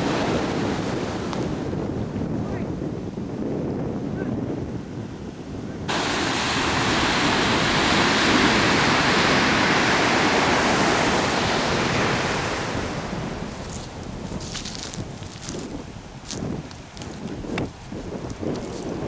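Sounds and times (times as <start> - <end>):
surf breaking on beach: 0.0 - 1.9, 5.9 - 19.0
wind rumbling on microphone: 0.0 - 19.0.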